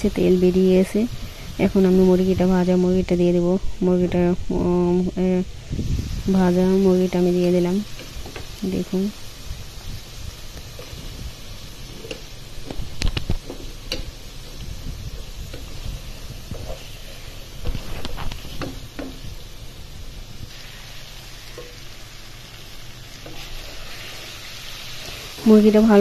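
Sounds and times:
chicken sizzling in oily paste: 5.6 - 26.0.

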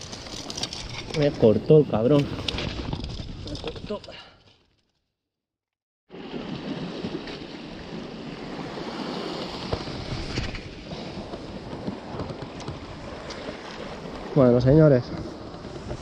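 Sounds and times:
sea surf: 6.1 - 16.0.

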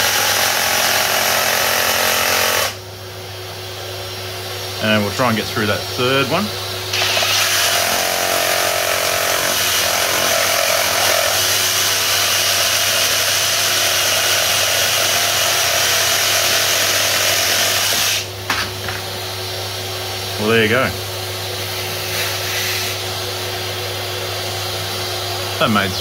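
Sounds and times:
reciprocating saw cutting timber: 0.0 - 2.8, 6.9 - 18.3.

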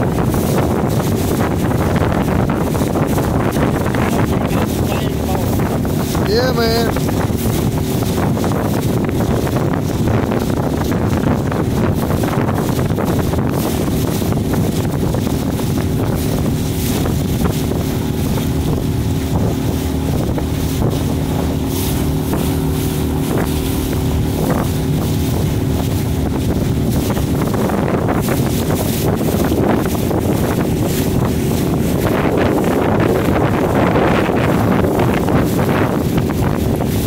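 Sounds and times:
wind buffeting microphone: 0.0 - 37.0.

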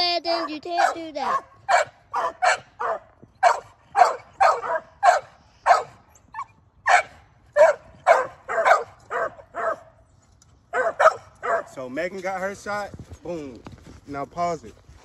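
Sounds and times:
puppy barking and yelping: 0.3 - 9.9, 10.7 - 11.7.

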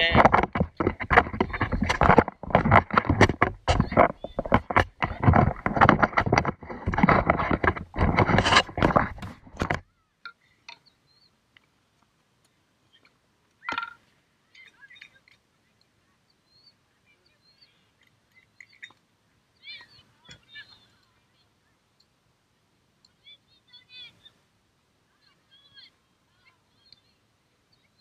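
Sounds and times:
rustling on microphone: 0.0 - 10.0
faint high chirps: 14.4 - 22.1, 25.1 - 28.0.

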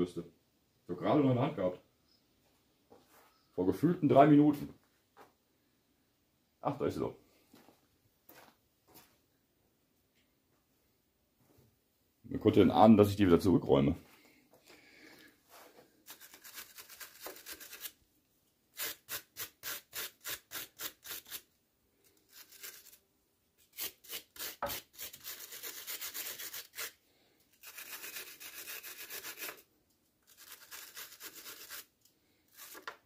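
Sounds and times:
wire brush scrubbing metal: 27.6 - 29.6, 30.3 - 31.9.

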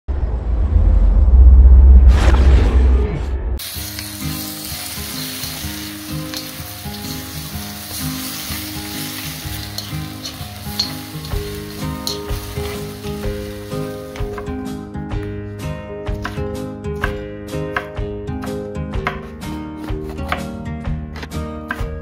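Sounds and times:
food sizzling in a wok: 3.6 - 14.6
light background music: 3.6 - 22.0
spatula tapping and scraping pan: 5.4 - 13.2, 14.1 - 14.5.

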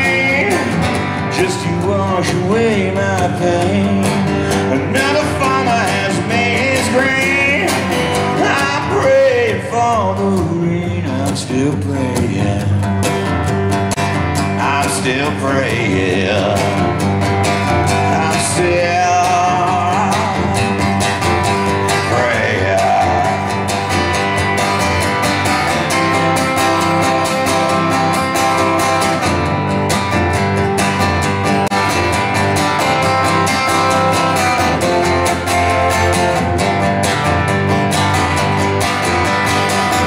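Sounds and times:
man singing: 0.0 - 13.1, 14.5 - 21.1, 21.7 - 24.0
strummed guitar: 0.0 - 40.0.

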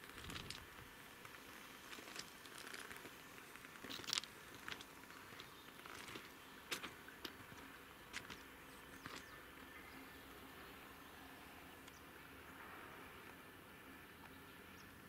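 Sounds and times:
footsteps crunching on gravel: 0.1 - 9.4.

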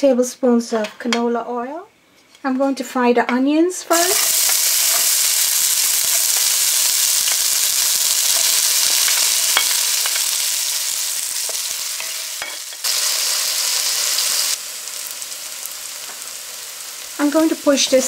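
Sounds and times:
onions sizzling in oil: 3.9 - 18.0.

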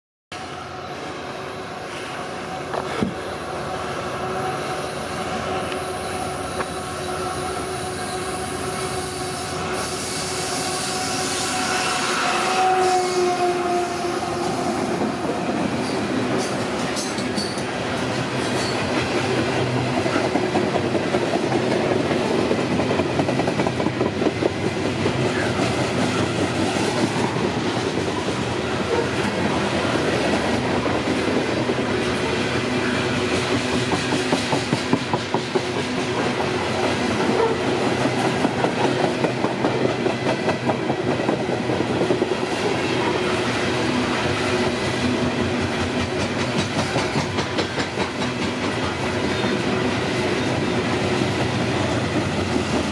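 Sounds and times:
train wheels clacking over rail joints: 15.2 - 29.4, 33.1 - 43.1, 44.6 - 52.9.

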